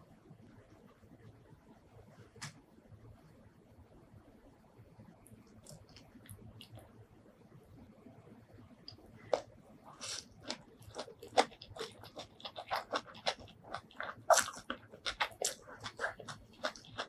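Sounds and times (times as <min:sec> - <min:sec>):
close chewing mouth sounds: 0:05.5 - 0:06.9, 0:08.9 - 0:17.0.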